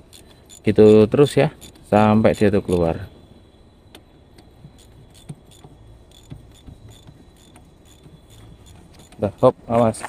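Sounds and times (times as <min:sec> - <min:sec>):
ratchet wrench clicking: 0:00.0 - 0:02.6, 0:04.6 - 0:09.5.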